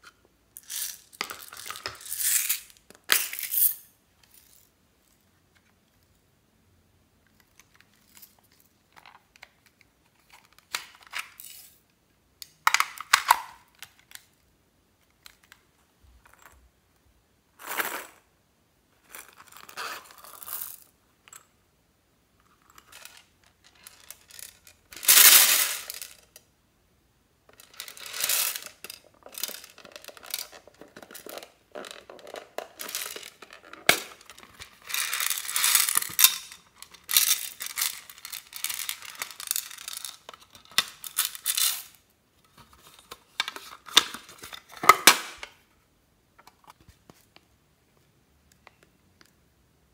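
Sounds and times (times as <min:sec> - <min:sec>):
beads clicking and rattling: 0:00.6 - 0:04.7, 0:22.6 - 0:26.4, 0:27.5 - 0:42.0
beads spilling clatter: 0:23.8 - 0:26.2, 0:27.6 - 0:30.5, 0:31.1 - 0:40.2
plastic cases being handled: 0:27.5 - 0:41.6.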